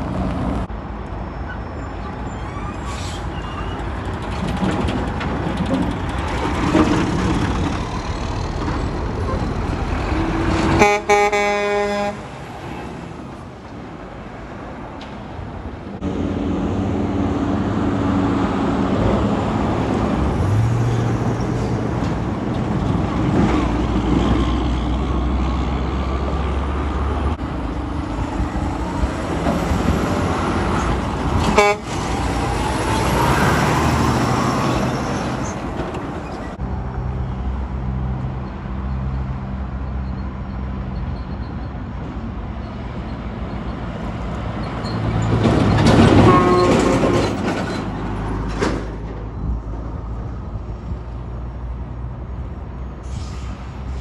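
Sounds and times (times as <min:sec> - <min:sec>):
dump trucks driving past: 0:00.0 - 0:54.0.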